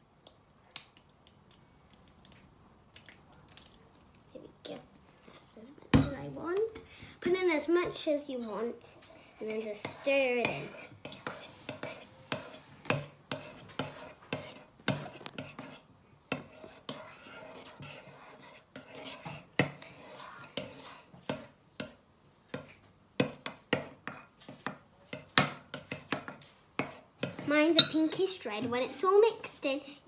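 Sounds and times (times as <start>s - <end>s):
metal spoon scraping ceramic bowl: 26.8s - 28.2s.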